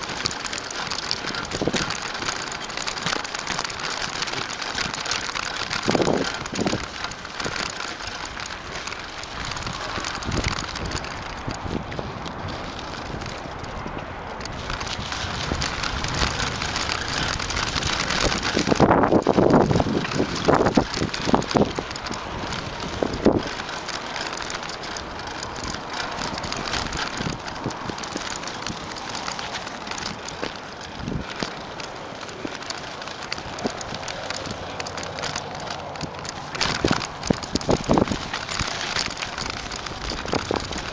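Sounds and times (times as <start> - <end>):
bike and camera rattling: 0.0 - 40.9
knobby tyres rolling on dirt: 0.0 - 40.9
wind on microphone: 9.3 - 23.7, 36.6 - 40.9.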